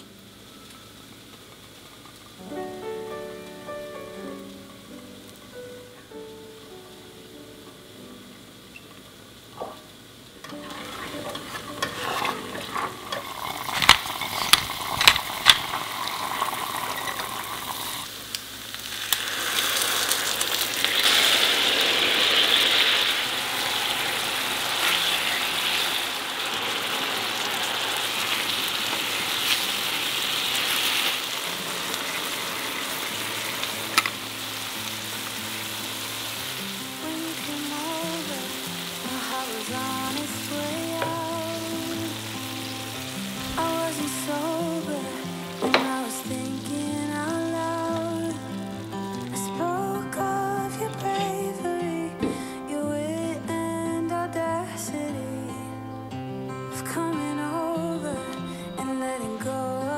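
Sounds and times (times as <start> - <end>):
tofu sizzling in oil: 8.7 - 50.2.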